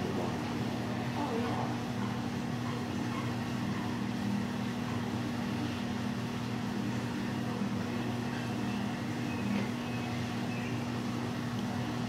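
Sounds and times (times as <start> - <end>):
building equipment humming: 0.0 - 12.0.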